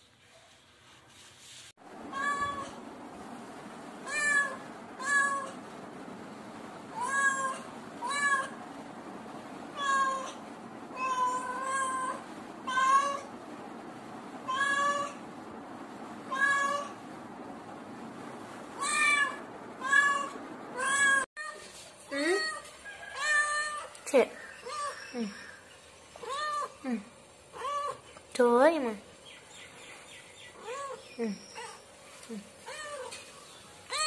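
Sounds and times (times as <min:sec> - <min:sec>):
cat meowing: 0:02.1 - 0:02.8, 0:04.0 - 0:05.6, 0:06.9 - 0:08.6, 0:09.7 - 0:13.3, 0:14.5 - 0:15.2, 0:16.3 - 0:17.0, 0:18.8 - 0:21.6, 0:23.2 - 0:24.0.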